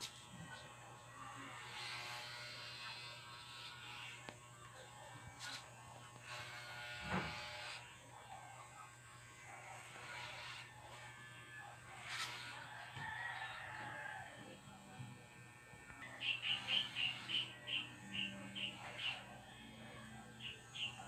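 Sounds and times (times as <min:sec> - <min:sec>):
electric hair clippers buzzing: 0:00.0 - 0:13.0, 0:14.4 - 0:21.0.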